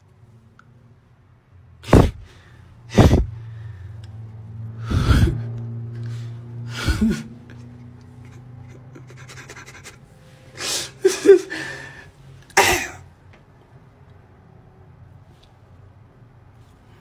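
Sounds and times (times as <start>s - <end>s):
man making breathy vocal bursts: 1.8s - 3.5s, 4.8s - 5.6s.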